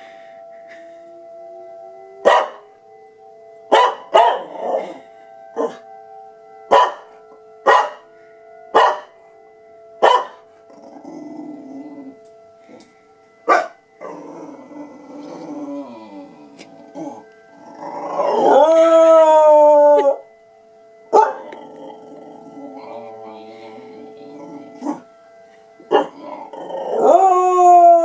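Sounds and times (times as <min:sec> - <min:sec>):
warning siren: 0:00.0 - 0:28.0
dog barking: 0:02.2 - 0:02.6, 0:03.7 - 0:04.5, 0:06.7 - 0:07.1, 0:07.7 - 0:08.0, 0:08.8 - 0:09.1, 0:10.0 - 0:10.4, 0:13.5 - 0:13.8, 0:21.2 - 0:21.4, 0:25.9 - 0:26.2.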